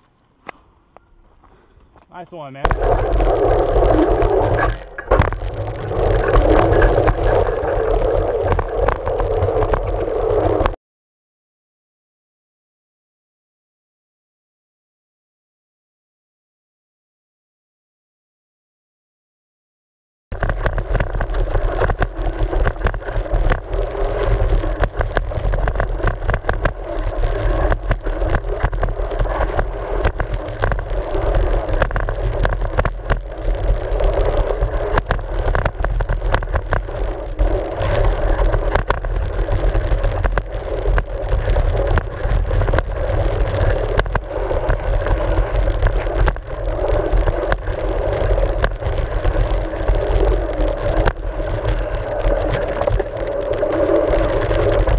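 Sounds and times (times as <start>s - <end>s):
tyres rumbling on dirt: 1.9s - 10.8s, 20.4s - 54.9s
wind on microphone: 2.6s - 10.8s, 20.3s - 54.9s.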